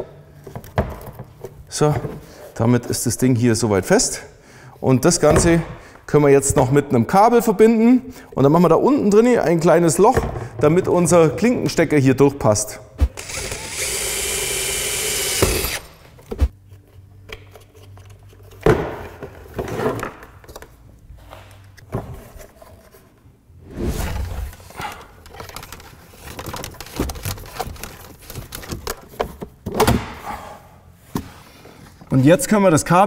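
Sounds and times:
cordless drill boring plastic: 0:13.2 - 0:15.9.

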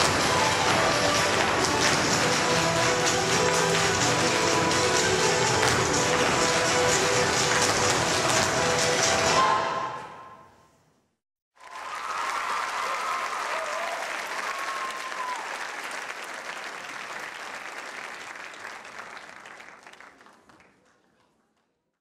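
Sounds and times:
audience applauding: 0:00.0 - 0:09.4, 0:11.6 - 0:21.4
audience cheering: 0:11.6 - 0:17.1.

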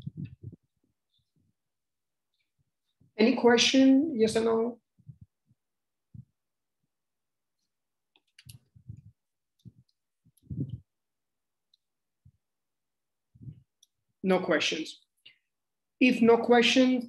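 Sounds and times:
soft low thumps: 0:00.0 - 0:00.7, 0:10.4 - 0:10.8.

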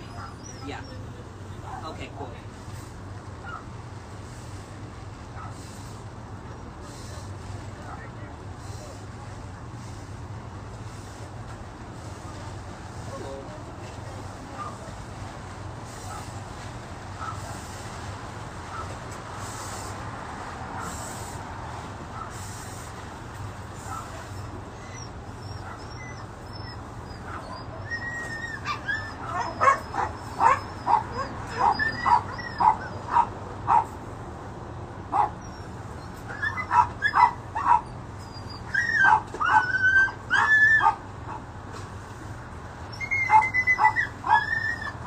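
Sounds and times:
dog yelping and whining: 0:00.0 - 0:01.2, 0:23.9 - 0:33.9, 0:35.2 - 0:41.4, 0:42.9 - 0:45.0.

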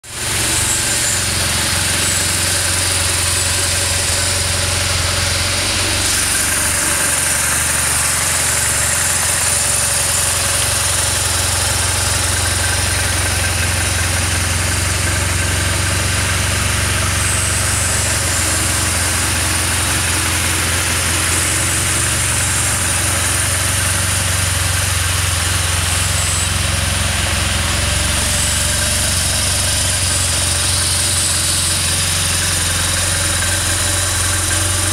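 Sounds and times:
motorcycle engine idling: 0:00.0 - 0:34.9.

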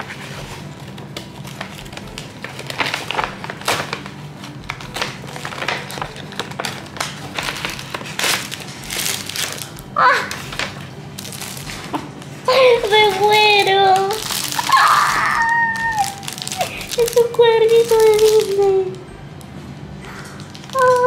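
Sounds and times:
paper bag rustling: 0:00.0 - 0:19.0, 0:20.1 - 0:21.0
woman exclaiming: 0:12.5 - 0:18.9.

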